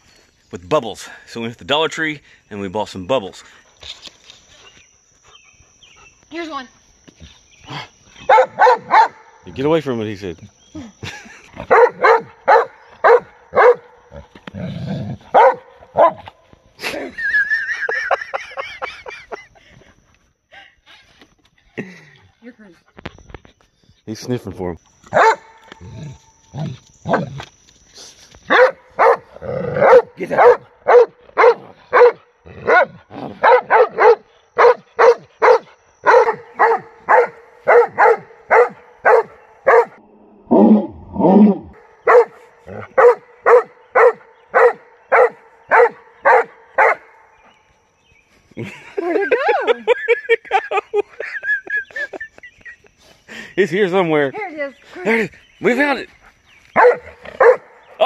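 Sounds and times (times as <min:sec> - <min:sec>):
dog barking: 0:08.3 - 0:09.2, 0:11.7 - 0:13.9, 0:15.3 - 0:16.3, 0:25.1 - 0:25.6, 0:28.5 - 0:40.0, 0:42.0 - 0:47.1, 0:56.8 - 0:57.8.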